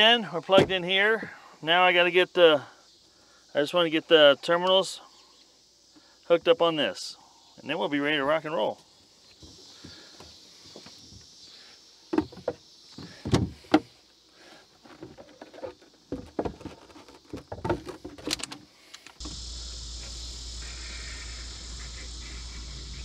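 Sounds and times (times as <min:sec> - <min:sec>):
low hum with hiss: 0:18.8 - 0:23.0.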